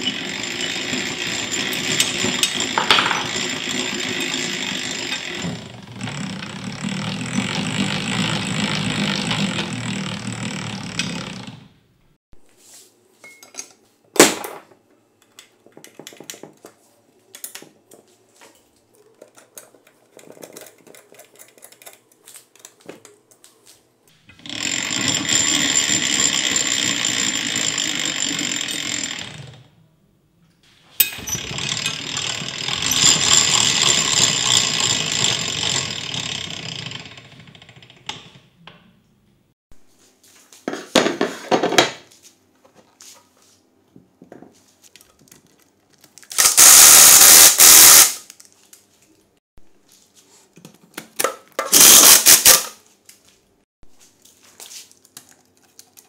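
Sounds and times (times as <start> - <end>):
ice shaver machine grinding: 0.0 - 11.7, 24.2 - 29.7, 31.1 - 38.3, 46.3 - 48.2, 51.7 - 52.6.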